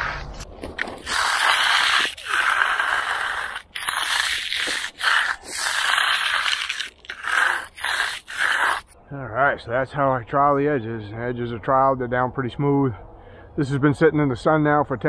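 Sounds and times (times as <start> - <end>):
trowel scraping concrete: 0.0 - 9.0.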